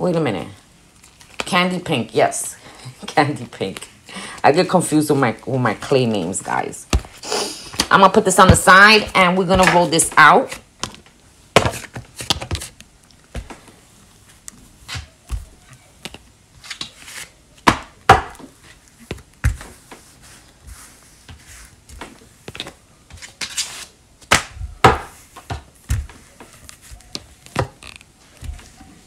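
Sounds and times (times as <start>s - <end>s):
rolling pin knocks and thumps: 7.8s - 11.0s.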